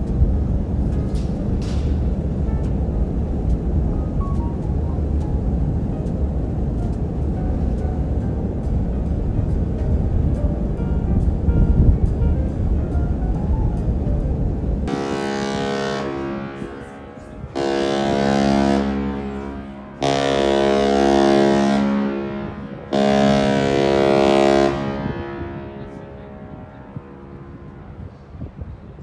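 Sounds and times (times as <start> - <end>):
ship's whistle blasts: 14.9 - 27.2.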